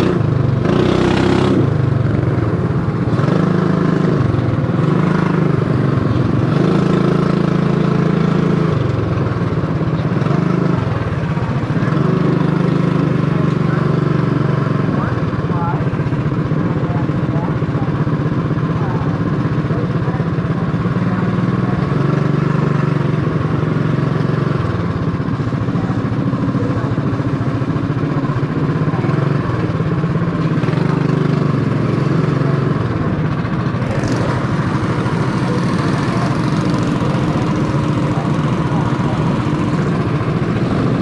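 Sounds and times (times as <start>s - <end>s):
small engine running at low revs: 0.0s - 41.0s.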